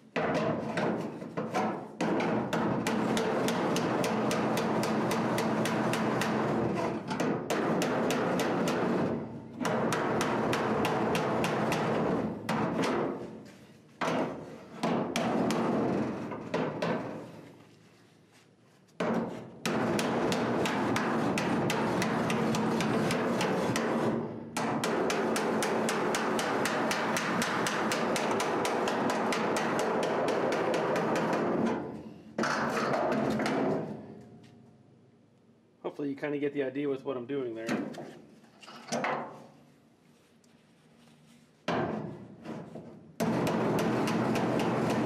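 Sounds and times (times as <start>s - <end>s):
hammer striking sheet steel: 0.2s - 13.4s, 14.0s - 17.3s, 19.0s - 34.1s, 41.7s - 45.0s.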